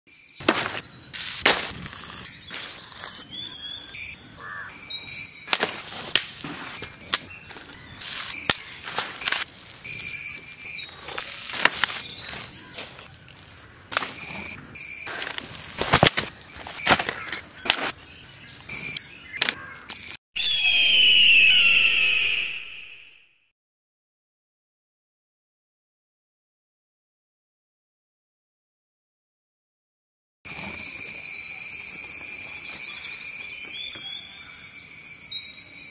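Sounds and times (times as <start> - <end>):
high bird or insect chirps: 0.1 - 23.0, 30.5 - 35.9
forest background sound: 0.1 - 23.2, 30.5 - 35.9.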